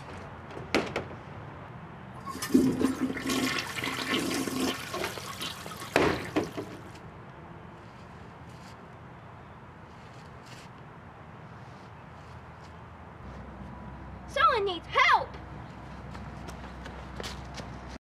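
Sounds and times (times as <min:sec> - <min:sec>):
toilet flushing: 0:02.2 - 0:06.6.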